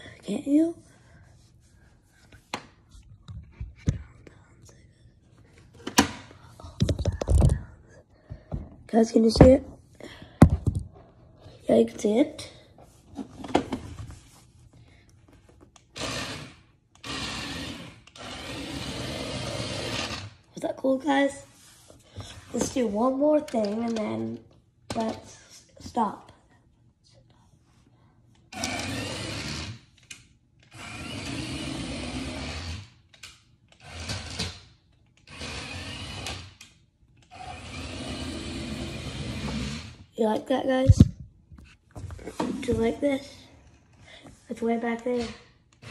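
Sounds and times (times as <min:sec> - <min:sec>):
toy truck motor whirring: 0:15.8 - 0:20.5, 0:28.4 - 0:40.1, 0:45.0 - 0:45.9.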